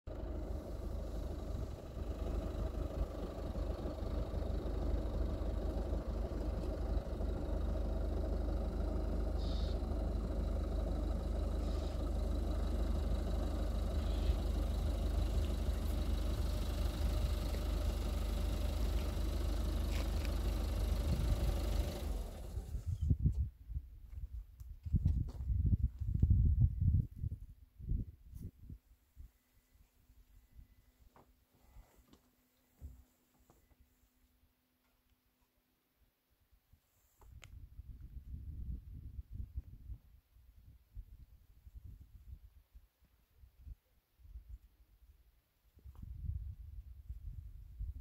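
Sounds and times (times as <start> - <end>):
wind buffeting microphone: 22.6 - 28.8, 37.4 - 42.5.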